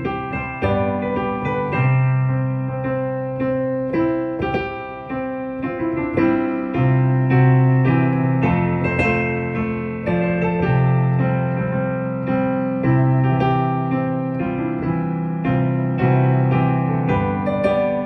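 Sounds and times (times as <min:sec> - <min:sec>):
slow piano tune: 0:00.0 - 0:18.0.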